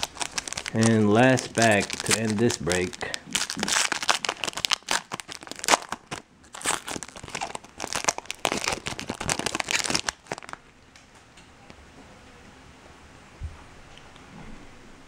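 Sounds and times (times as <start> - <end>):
foil wrapper crinkling and tearing: 0.0 - 10.6.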